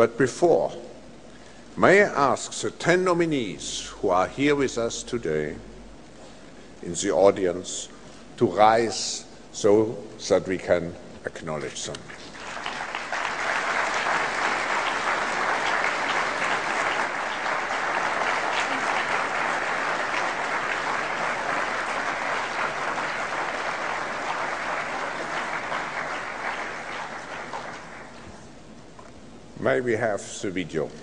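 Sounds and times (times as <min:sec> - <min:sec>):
audience applauding: 0:12.1 - 0:28.4.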